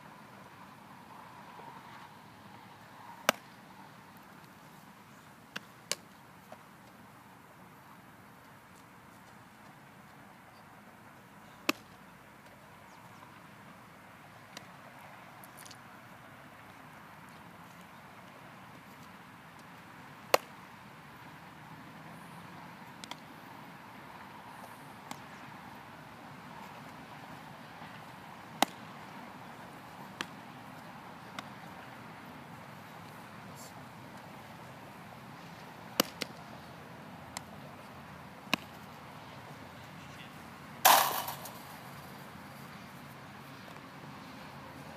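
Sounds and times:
baseball smacking into glove: 0:03.2 - 0:03.5, 0:20.3 - 0:20.5, 0:36.0 - 0:36.4, 0:38.5 - 0:38.8, 0:40.8 - 0:42.1
distant ball catch pops: 0:11.7 - 0:11.9, 0:20.3 - 0:20.5, 0:36.0 - 0:36.4, 0:38.5 - 0:38.8, 0:40.8 - 0:41.8.

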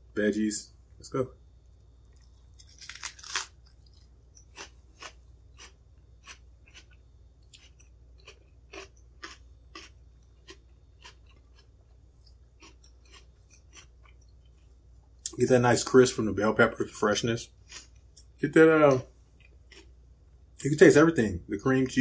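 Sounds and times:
crisp chewing crunches: 0:02.1 - 0:15.9, 0:17.4 - 0:18.3, 0:19.4 - 0:19.9.

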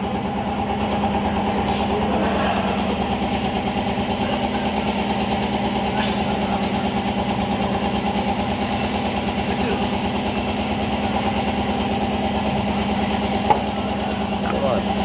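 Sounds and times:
small engine idling: 0:00.0 - 0:15.0.

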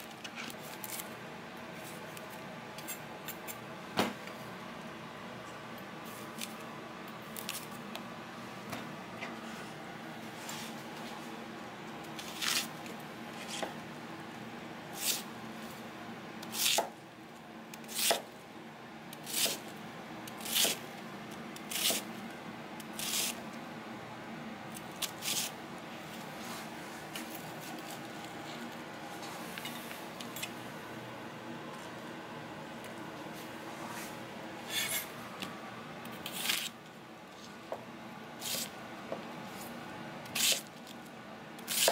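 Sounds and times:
knife crunching through onion: 0:12.2 - 0:12.8, 0:21.7 - 0:22.1, 0:23.0 - 0:23.4, 0:36.2 - 0:36.8, 0:38.4 - 0:38.7, 0:40.3 - 0:40.7, 0:41.6 - 0:41.9.

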